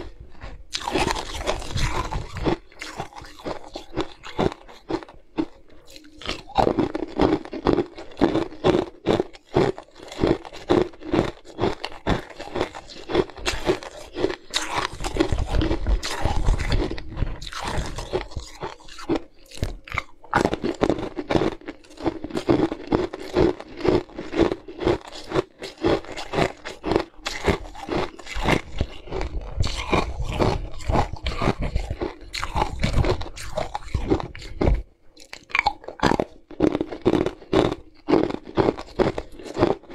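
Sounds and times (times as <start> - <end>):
ice being crunched by teeth: 0.0 - 39.9.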